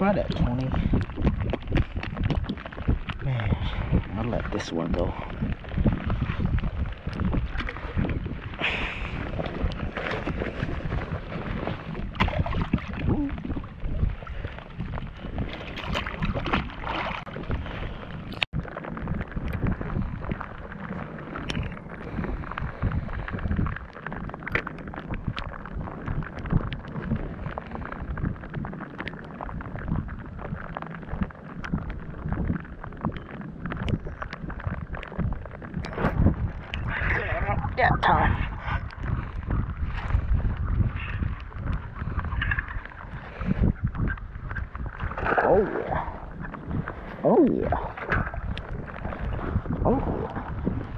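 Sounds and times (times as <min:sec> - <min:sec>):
wind buffeting microphone: 0:00.0 - 0:50.9
water slapping against hull: 0:03.8 - 0:50.9.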